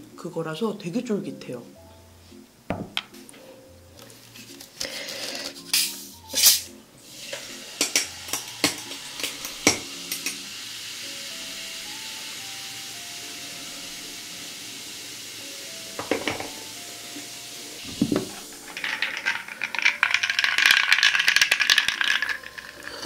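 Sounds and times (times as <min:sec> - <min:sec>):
bottle opening hiss: 0:04.9 - 0:13.0, 0:16.5 - 0:19.5
carbonation fizz: 0:05.4 - 0:23.0
water pouring over ice: 0:07.0 - 0:14.0, 0:16.6 - 0:23.0
ice crackling and clicking: 0:18.5 - 0:23.0.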